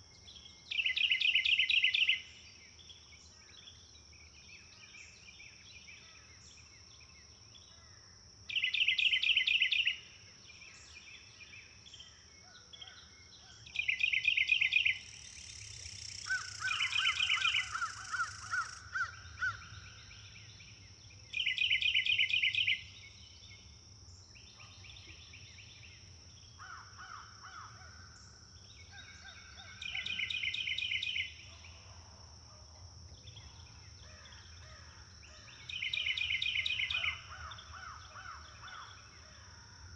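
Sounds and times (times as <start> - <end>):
quieter bird calls: 8.5 - 31.8, 33.3 - 39.5
high insect drone: 14.6 - 20.8.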